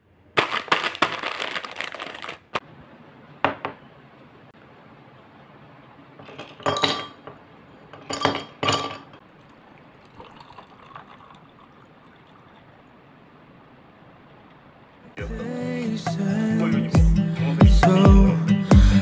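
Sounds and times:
water pouring over ice: 0:09.3 - 0:12.9.

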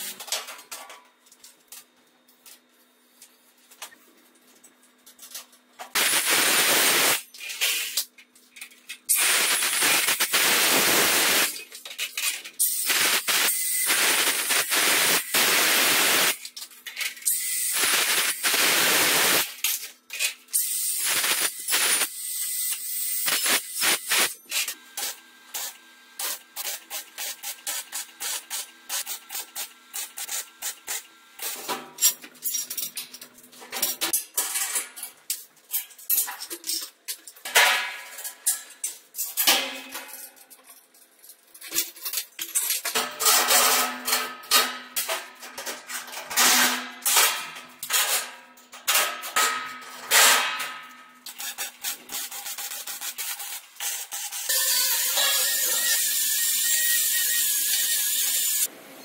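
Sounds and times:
power tool noise: 0:54.5 - 0:58.7.

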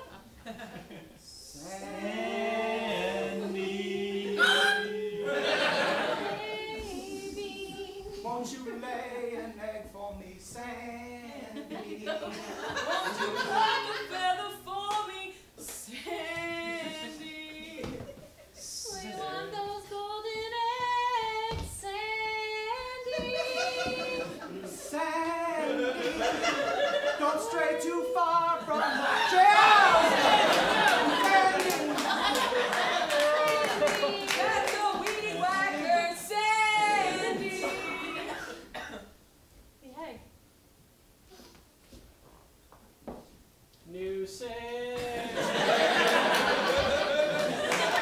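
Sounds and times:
voices singing unaccompanied: 0:01.2 - 0:38.9
loud cry: 0:04.3 - 0:06.0.

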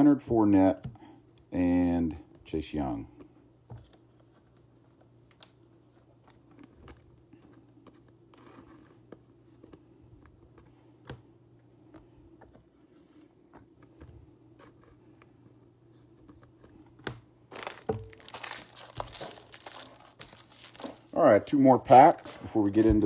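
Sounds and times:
low steady hum: 0:00.0 - 0:23.0
foil wrapper crinkling: 0:17.5 - 0:21.2.

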